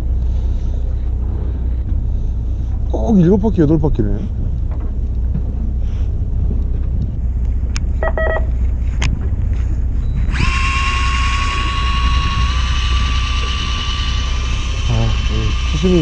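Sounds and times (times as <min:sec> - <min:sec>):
boat engine rumble: 0:00.0 - 0:16.0
short tone: 0:08.0 - 0:08.5
small electric motor whining: 0:10.2 - 0:16.0.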